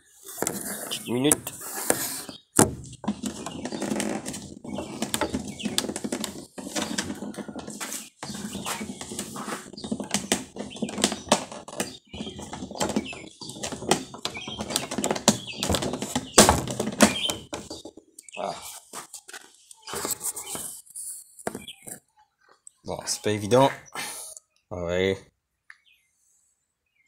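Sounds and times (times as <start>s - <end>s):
knocks on boat hull: 2.6s - 5.9s
hands rustling: 3.3s - 12.4s.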